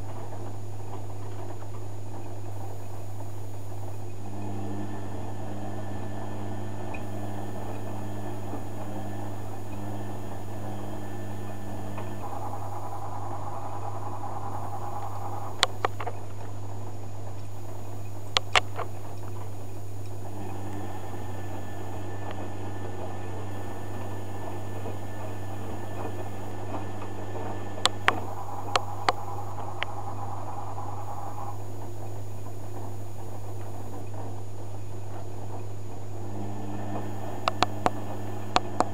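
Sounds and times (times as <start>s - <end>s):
washing machine humming: 0.0s - 38.9s
sharp clicks: 17.3s - 20.9s, 23.2s - 31.6s, 36.9s - 38.9s.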